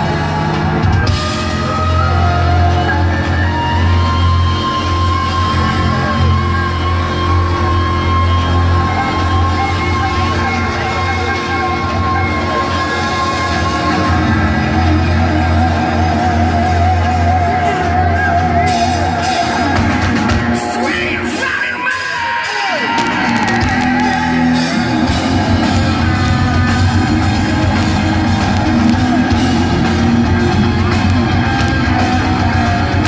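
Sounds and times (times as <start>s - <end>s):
hard rock band playing live: 0.0s - 33.0s.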